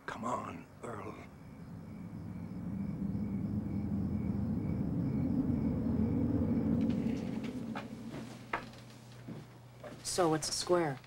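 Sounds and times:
vehicle engine rumble from inside cab: 0.8 - 9.7.

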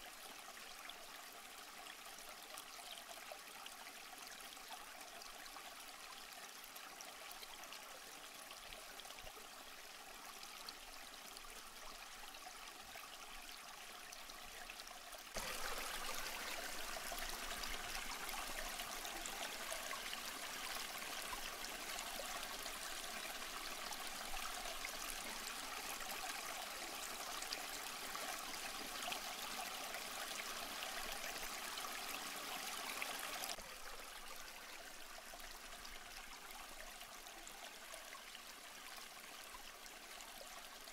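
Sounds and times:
aquarium water trickling and splashing: 0.0 - 40.9.

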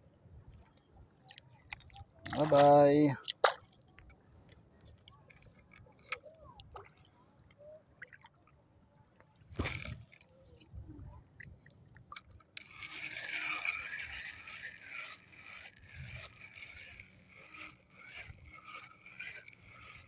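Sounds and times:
shallow seawater lapping: 0.6 - 20.0
fishing reel winding line: 12.2 - 20.0.

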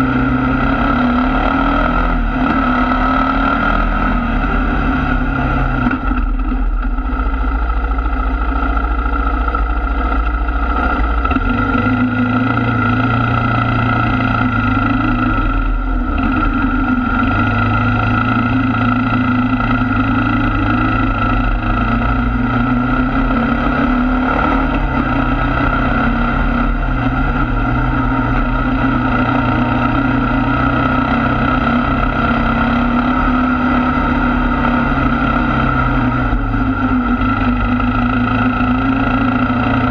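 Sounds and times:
atv engine running: 0.0 - 39.9.

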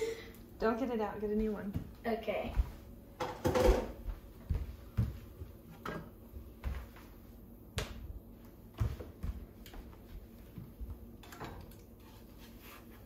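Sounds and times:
light knocks and clicks in kitchen: 2.6 - 6.9, 10.5 - 11.9.

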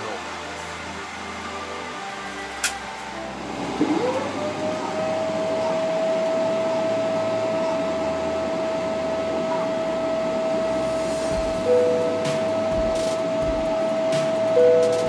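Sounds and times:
jet engine whine: 3.2 - 15.0
rush of jet engine noise: 3.4 - 15.0.

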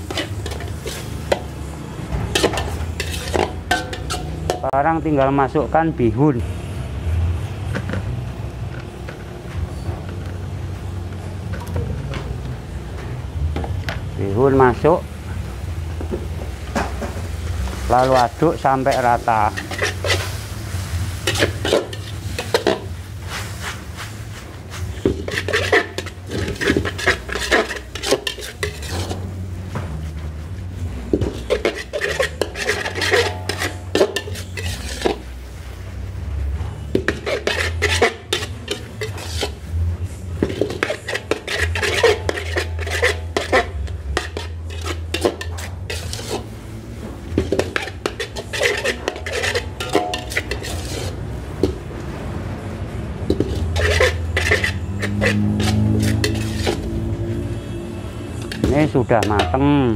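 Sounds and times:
metal ladle scraping a wok: 0.0 - 5.3, 16.7 - 59.7.

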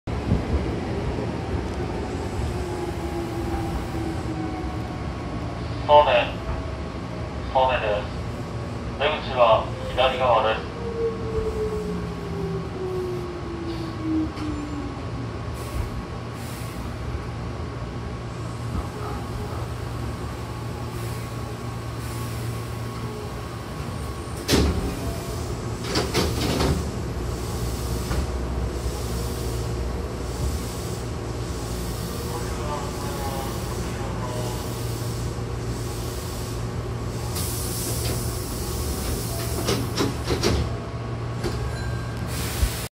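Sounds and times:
train running gear rumble: 0.1 - 5.8, 10.8 - 42.8
short air hisses: 34.5 - 39.3, 42.3 - 42.9.

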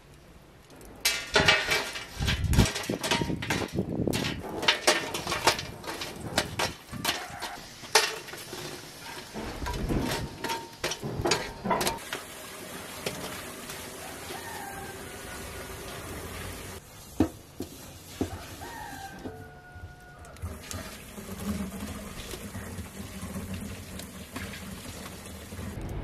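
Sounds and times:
charcoal clattering on enamel tray: 1.0 - 12.2.

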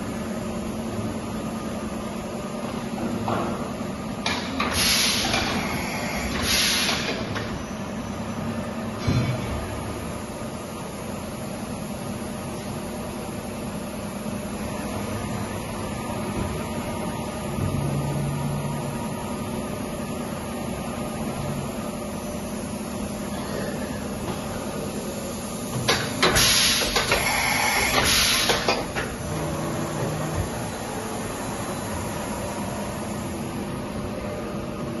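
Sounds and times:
loud hiss: 4.7 - 7.2, 26.4 - 28.7.

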